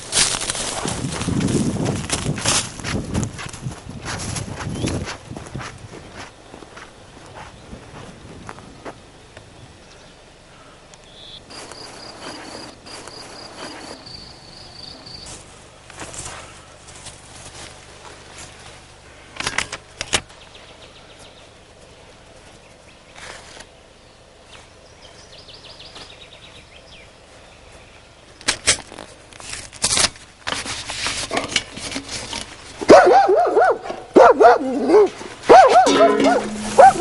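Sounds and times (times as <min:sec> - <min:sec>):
brush scrubbing wooden boards: 0:11.5 - 0:14.1
dog barking: 0:32.9 - 0:37.0.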